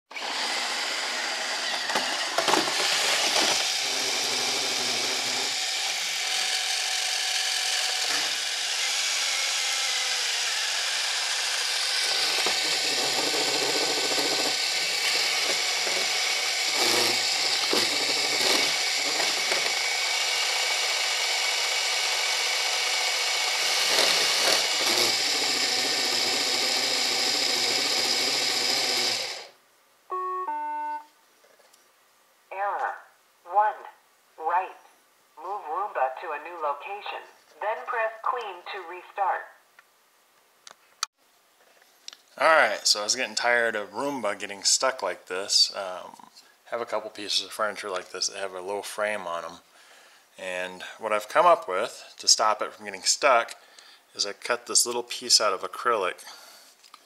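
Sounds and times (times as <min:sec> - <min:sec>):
robot vacuum whirring: 0:00.1 - 0:29.5.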